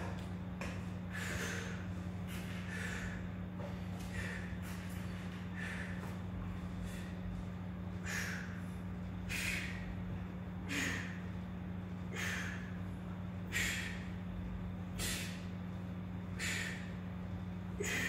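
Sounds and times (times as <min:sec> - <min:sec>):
steady low hum: 0:00.0 - 0:18.0
man breathing out forcefully: 0:01.1 - 0:04.8, 0:05.5 - 0:06.1, 0:08.0 - 0:10.0, 0:10.6 - 0:11.3, 0:12.0 - 0:12.8, 0:13.4 - 0:14.2, 0:14.9 - 0:15.5, 0:16.3 - 0:17.0.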